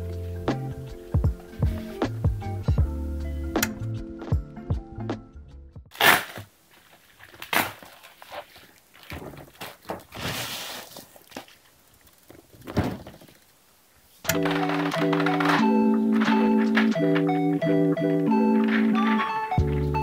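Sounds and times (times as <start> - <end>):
background music: 0.0 - 5.9, 14.3 - 20.0.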